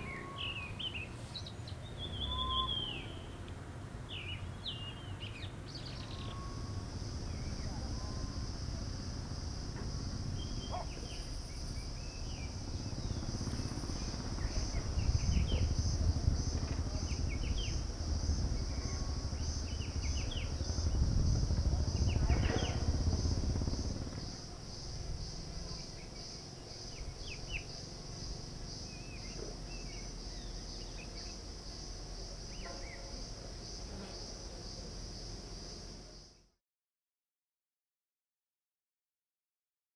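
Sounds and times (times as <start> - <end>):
low gusting rumble: 0.0 - 29.2
small birds chirping: 0.0 - 36.4
high-pitched insect chorus: 4.1 - 36.5.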